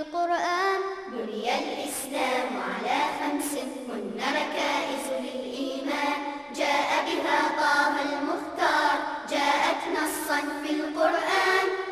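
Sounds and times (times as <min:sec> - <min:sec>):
children's choir singing: 0:01.0 - 0:11.9.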